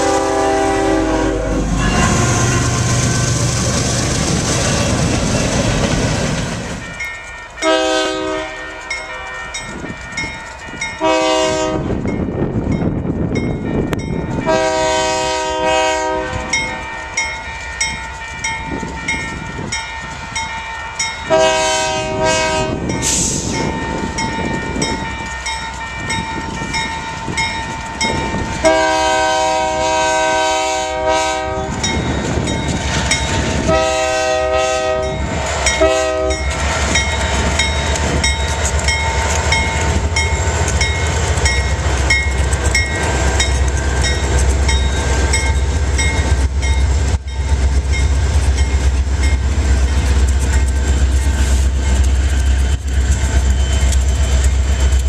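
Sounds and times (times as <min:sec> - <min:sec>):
locomotive horn chord: 0:00.0 - 0:03.5, 0:07.6 - 0:09.4, 0:11.0 - 0:11.9, 0:14.5 - 0:16.8, 0:21.3 - 0:22.9, 0:28.6 - 0:31.8, 0:33.7 - 0:36.5
crossing bell dinging: 0:06.8 - 0:55.0.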